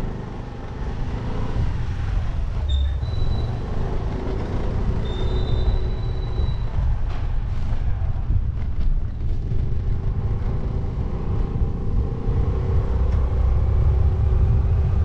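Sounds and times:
wind on microphone: 5.6s - 15.0s.

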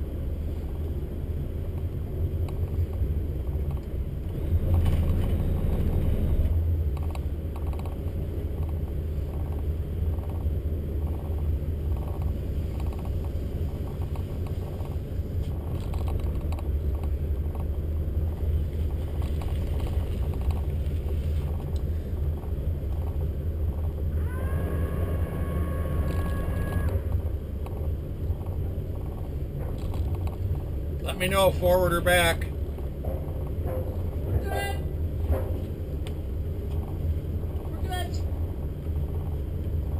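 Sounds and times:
boat engines droning: 0.0s - 39.9s.

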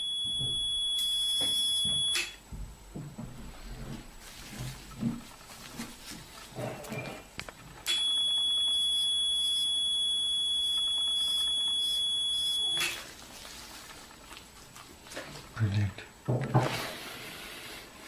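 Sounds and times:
high-pitched electronic beep: 7.9s - 13.0s.

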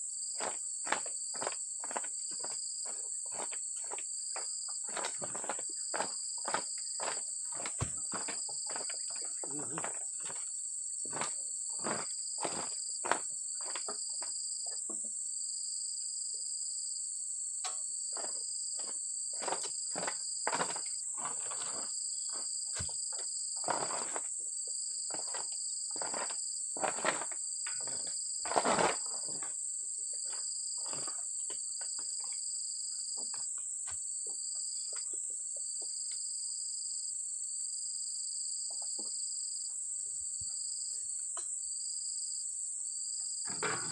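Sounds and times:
insects trilling: 0.0s - 43.9s
dull knocks and thuds: 4.9s - 10.4s.

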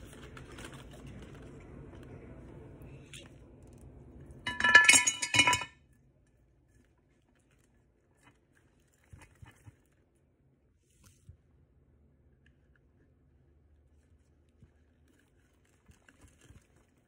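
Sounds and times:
glass jar clinking: 4.5s - 5.8s.

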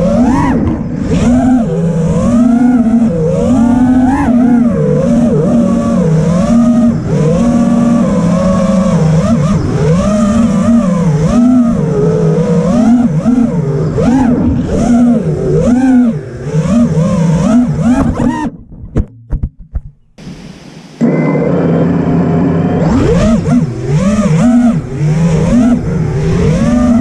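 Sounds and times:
drone motors whining: 0.0s - 18.6s, 20.2s - 27.0s.

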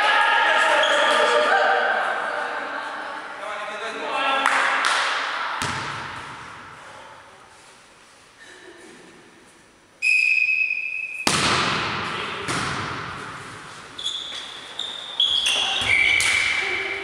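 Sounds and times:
volleyball hits: 4.5s - 6.8s, 11.1s - 14.6s, 15.3s - 16.6s
referee's whistle: 10.0s - 11.3s, 14.0s - 16.6s
shoe squeaks: 10.0s - 11.3s, 13.9s - 16.8s.

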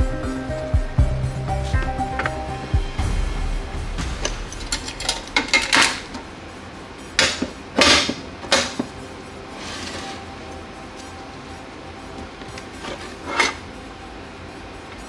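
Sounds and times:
metal lid clanking shut: 4.1s - 6.2s, 7.2s - 8.9s.

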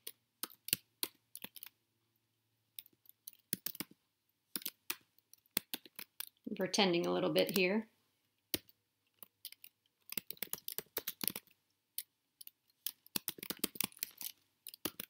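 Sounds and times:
keyboard keys clicking: 0.0s - 1.8s, 2.8s - 4.0s, 4.6s - 6.4s, 8.5s - 15.0s.

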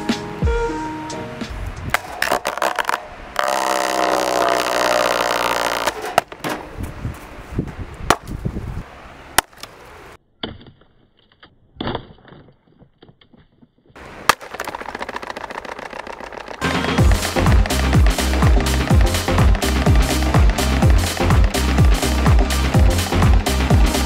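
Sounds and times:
plastic blades cracking: 1.9s - 6.6s, 14.2s - 22.3s
fan rattling buzz: 3.4s - 7.1s, 14.0s - 24.0s.

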